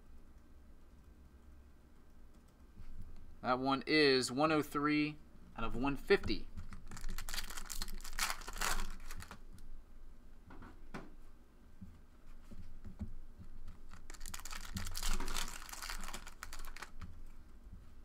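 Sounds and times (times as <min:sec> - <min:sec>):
foil wrappers crinkling and tearing: 0:07.0 - 0:09.4, 0:13.9 - 0:17.0.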